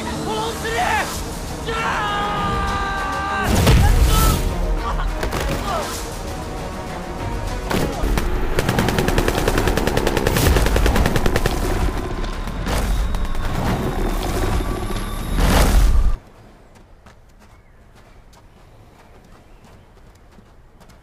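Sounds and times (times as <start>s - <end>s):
sharp cracks: 7.7s - 14.1s.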